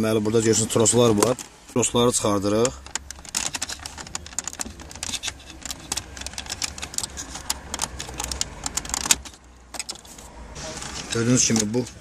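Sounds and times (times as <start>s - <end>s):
small plastic clicks and rattles: 2.6s - 10.1s.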